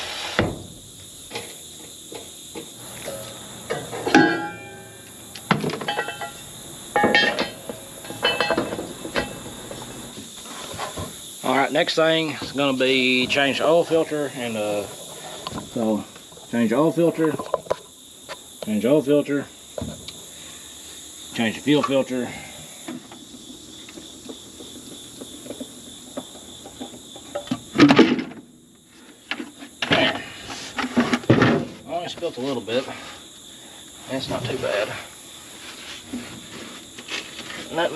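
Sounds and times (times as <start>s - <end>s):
metal clinks and knocks: 3.0s - 10.1s.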